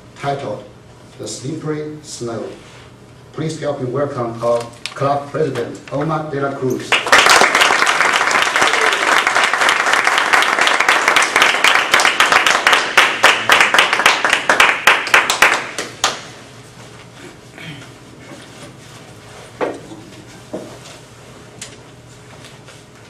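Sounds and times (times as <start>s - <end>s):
small audience applauding: 6.9s - 16.3s.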